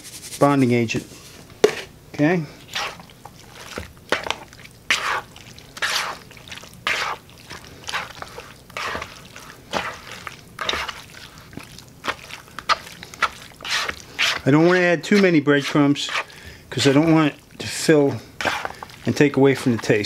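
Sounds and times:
spoon squelching wet mixture: 0:01.5 - 0:20.0.

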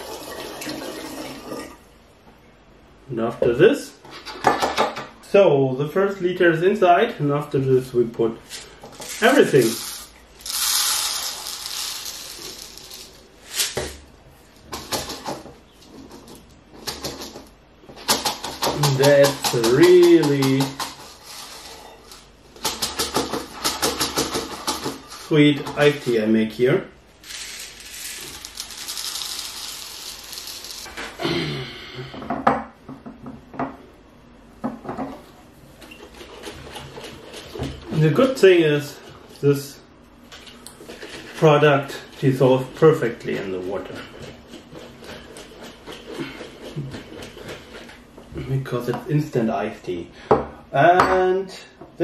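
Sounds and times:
granules pouring through funnel: 0:08.5 - 0:14.0, 0:18.8 - 0:22.3, 0:27.2 - 0:31.2.

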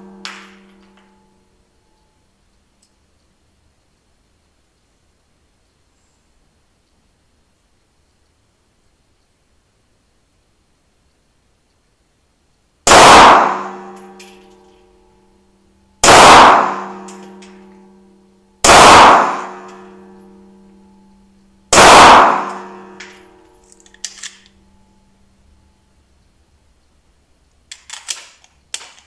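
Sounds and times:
pistol shots ringing indoors: 0:00.0 - 0:01.4, 0:12.8 - 0:25.2, 0:27.8 - 0:29.0
pistol handling clicks: 0:22.5 - 0:24.6, 0:27.7 - 0:29.0.

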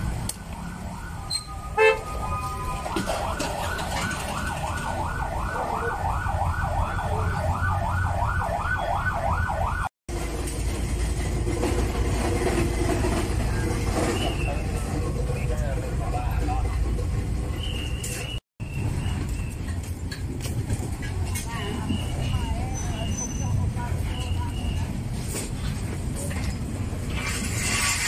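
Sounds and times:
low traffic rumble: 0:00.0 - 0:28.0
siren wailing in fast yelp: 0:00.6 - 0:09.9.

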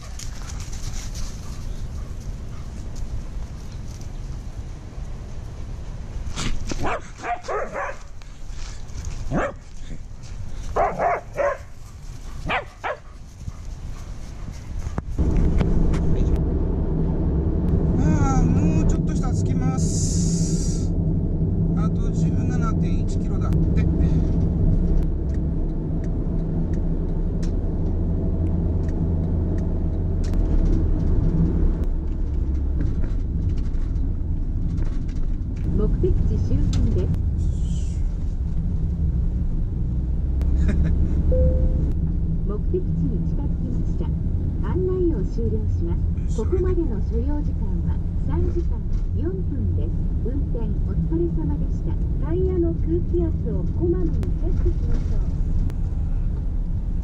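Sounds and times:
dogs barking and yipping: 0:00.0 - 0:03.0, 0:06.7 - 0:08.2, 0:09.3 - 0:09.7, 0:10.6 - 0:15.1
car road and engine rumble: 0:00.0 - 0:57.0.

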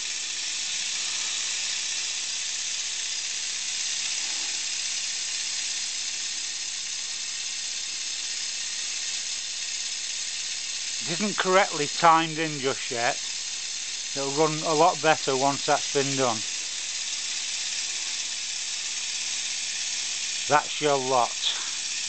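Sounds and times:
model steam engine running: 0:00.0 - 0:22.0
air hissing from joints: 0:00.8 - 0:01.9, 0:03.9 - 0:05.2, 0:14.1 - 0:22.0.

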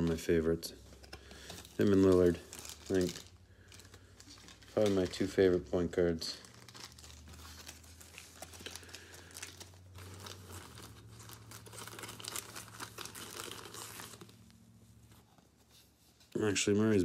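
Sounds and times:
plastic wrapping crinkling: 0:00.9 - 0:14.8.

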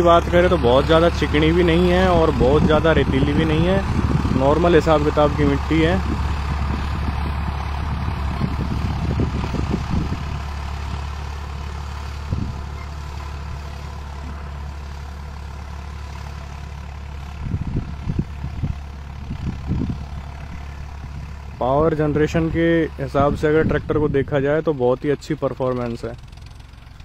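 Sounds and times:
low bumps: 0:00.0 - 0:11.1
tractor diesel engine running: 0:00.0 - 0:27.0.

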